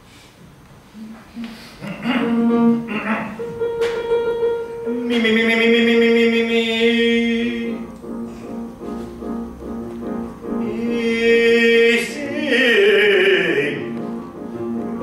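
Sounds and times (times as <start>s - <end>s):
man singing: 1.8s - 3.5s, 4.8s - 7.9s, 10.6s - 14.0s
piano accompaniment: 1.8s - 15.0s.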